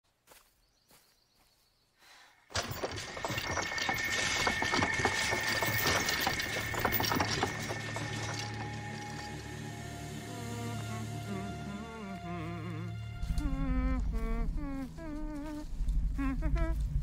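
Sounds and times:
dense crackling and clicking: 2.6s - 9.5s.

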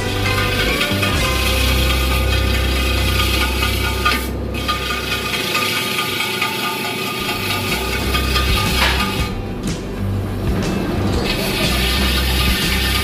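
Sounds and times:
hand tool rubbing on wheel rim: 0.0s - 9.5s, 10.5s - 13.0s
lathe motor hum: 0.0s - 13.0s.

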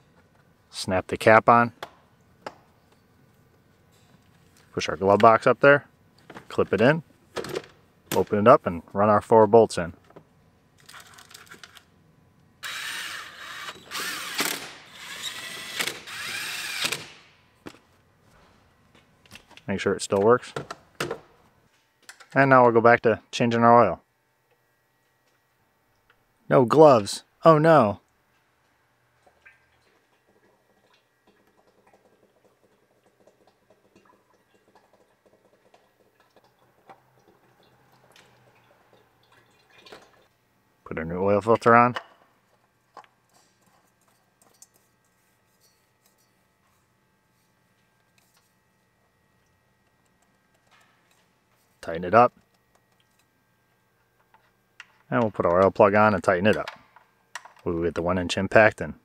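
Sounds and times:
cordless drill whining: 12.6s - 17.2s.

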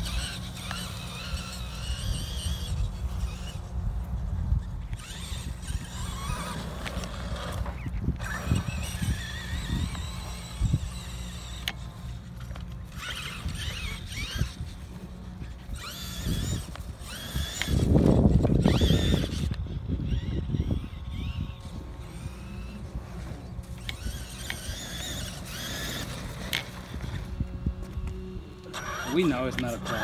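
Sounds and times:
electric motors whining: 0.0s - 30.0s.

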